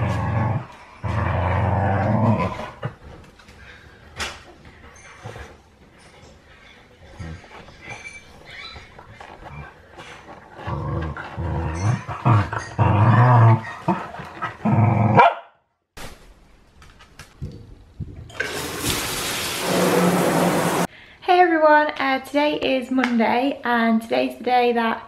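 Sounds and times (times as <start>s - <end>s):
dogs play-fighting: 0.0s - 15.1s
shower head spraying water: 18.4s - 20.9s.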